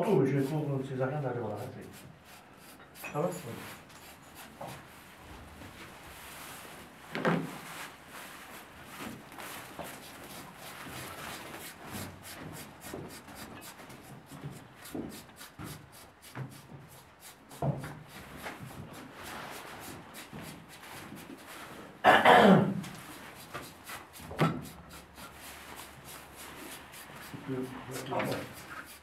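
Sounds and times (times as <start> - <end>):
razor scraping wet hair: 10.0 - 17.6, 22.9 - 29.0.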